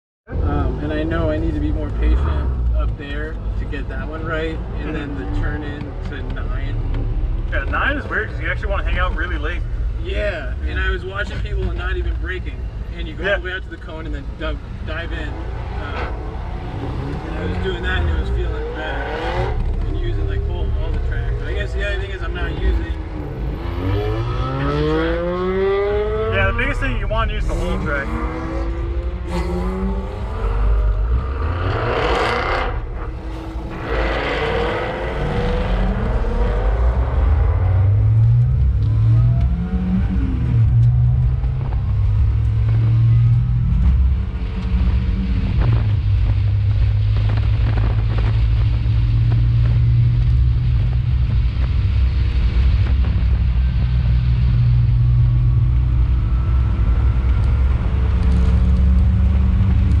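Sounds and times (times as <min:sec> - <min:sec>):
race car engine: 0:00.3 - 1:00.0.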